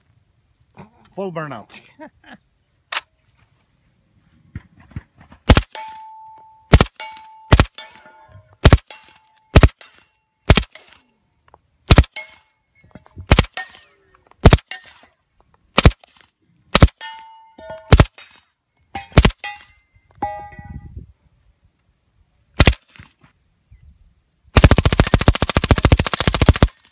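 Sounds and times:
suppressed gunshots: 5.4s - 5.8s, 6.7s - 8.0s, 8.6s - 11.0s, 11.9s - 12.2s, 13.3s - 13.7s, 15.8s - 17.0s, 22.6s - 23.1s
metallic ringing tone: 5.8s - 8.5s.

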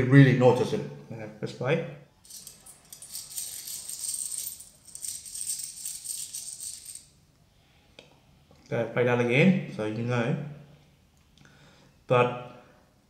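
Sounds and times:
coins jingling in a hand: 2.3s - 7.1s.

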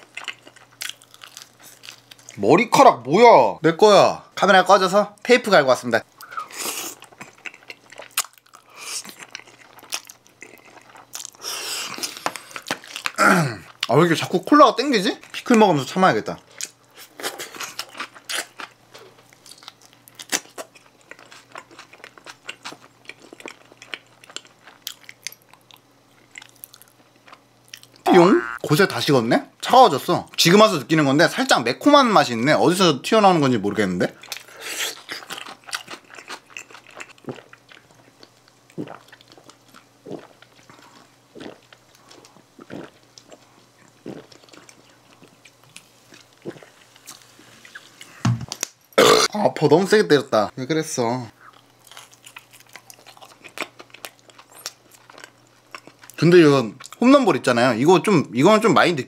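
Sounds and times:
crunchy chewing: 0.0s - 2.4s, 6.2s - 13.9s, 16.5s - 28.6s, 34.2s - 49.2s, 51.4s - 56.2s
person gulping a drink: 28.1s - 28.6s, 49.0s - 49.4s.

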